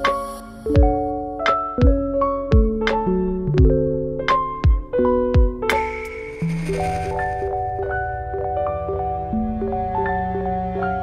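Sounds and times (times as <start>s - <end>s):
held keyboard notes: 0.0s - 11.0s
low drum beat: 1.8s - 7.0s.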